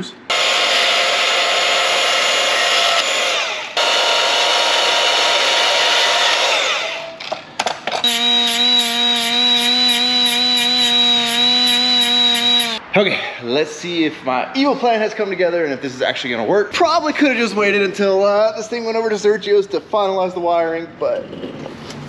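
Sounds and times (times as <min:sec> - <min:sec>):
cordless band saw cutting: 0:00.3 - 0:07.2, 0:08.0 - 0:12.8
cut-off tool high whine: 0:00.3 - 0:07.2, 0:08.0 - 0:12.8.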